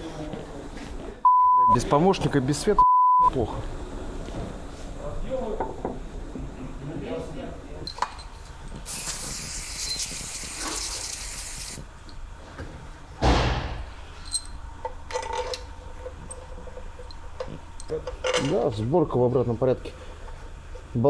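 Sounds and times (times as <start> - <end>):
aerosol spray can hissing: 8.9 - 11.8
loud knock: 13.2 - 13.9.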